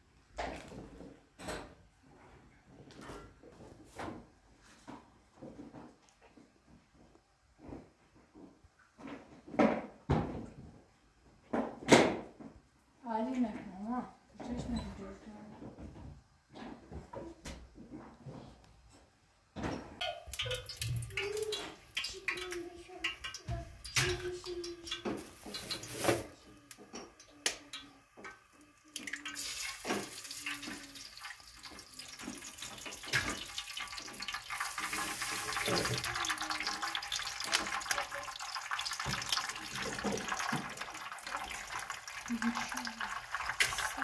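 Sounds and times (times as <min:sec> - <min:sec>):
pan and utensils clinking: 0:20.0 - 0:26.3
eggs sizzling in hot oil: 0:20.0 - 0:44.0.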